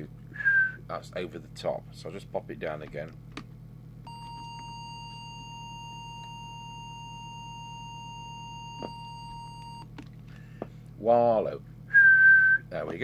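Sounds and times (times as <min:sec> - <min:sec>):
low hum: 0:01.8 - 0:10.6
steady test tone: 0:04.1 - 0:09.9.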